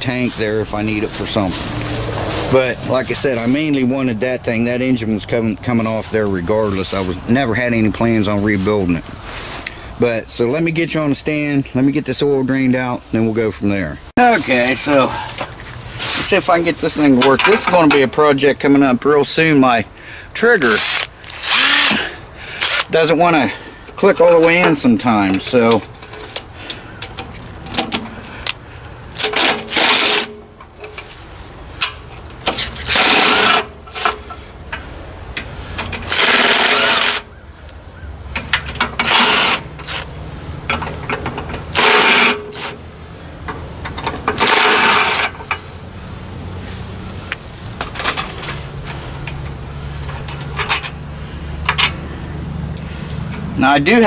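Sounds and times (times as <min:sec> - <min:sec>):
impact driver bursts: 0:20.6 - 0:23.0, 0:29.2 - 0:30.4, 0:32.5 - 0:34.2, 0:36.0 - 0:37.3, 0:39.0 - 0:40.1, 0:41.7 - 0:42.8, 0:44.4 - 0:45.4.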